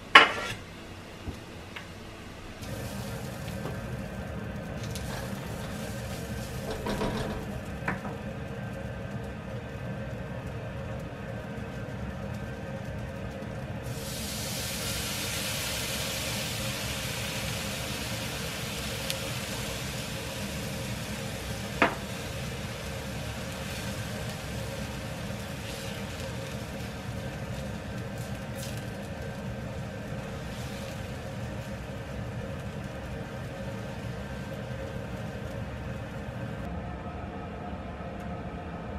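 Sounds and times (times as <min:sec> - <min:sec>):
loud sizzle in wok: 0:00.0 - 0:36.8
liquid poured into hot wok: 0:02.6 - 0:04.2, 0:13.8 - 0:35.6
spatula knocking on pan: 0:21.8 - 0:22.0.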